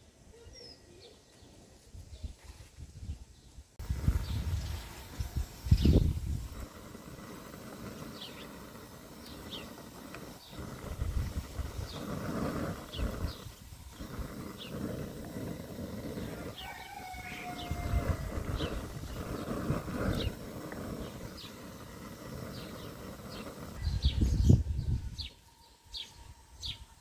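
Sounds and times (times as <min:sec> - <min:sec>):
broth bubbling in a pot: 0:03.8 - 0:23.8.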